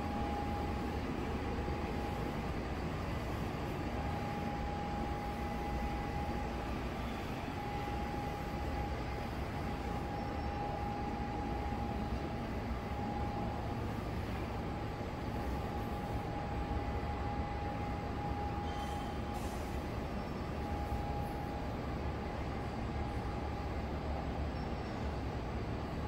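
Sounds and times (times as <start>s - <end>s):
constant humming tone: 0.0s - 26.0s.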